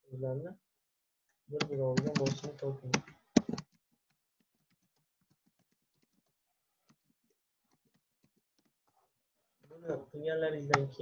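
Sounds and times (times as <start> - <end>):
keyboard typing clicks: 1.6 - 3.8.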